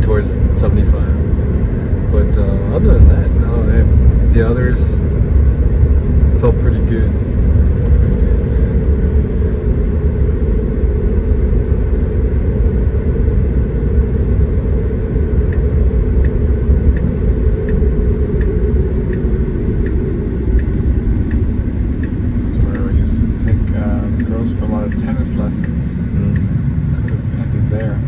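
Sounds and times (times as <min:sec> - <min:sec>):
road and tyre rumble: 0:00.0 - 0:28.0
turn signal ticking: 0:14.4 - 0:28.0.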